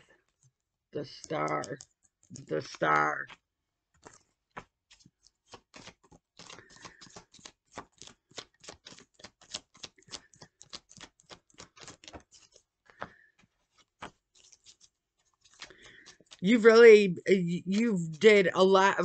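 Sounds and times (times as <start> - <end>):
cards being shuffled: 4.0 - 16.7.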